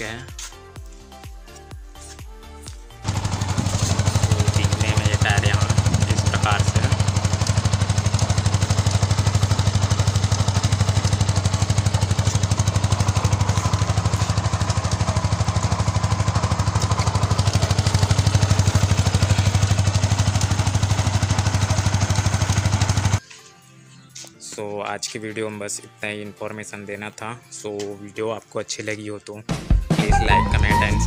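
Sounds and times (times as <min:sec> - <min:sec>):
motorcycle engine running: 0:03.0 - 0:23.2.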